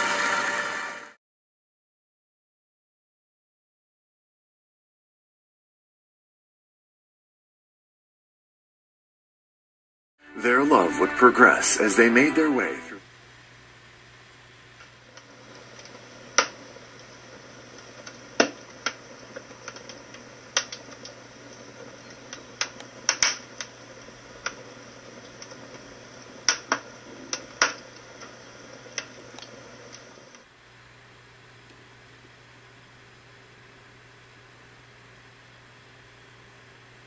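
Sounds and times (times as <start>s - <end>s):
fire crackling: 14.6s - 30.5s.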